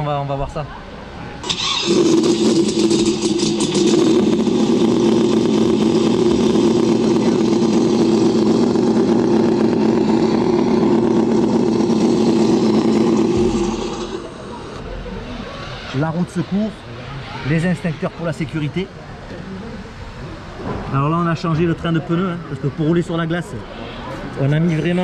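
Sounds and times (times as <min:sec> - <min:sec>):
simulated engine note from speaker: 0:01.6 - 0:15.6.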